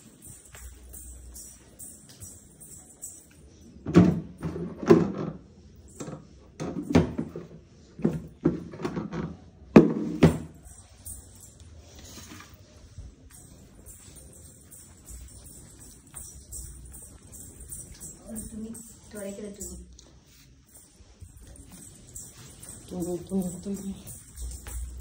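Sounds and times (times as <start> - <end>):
objects knocking and thudding: 3.8 - 10.7
faint handling sounds: 10.5 - 25.0.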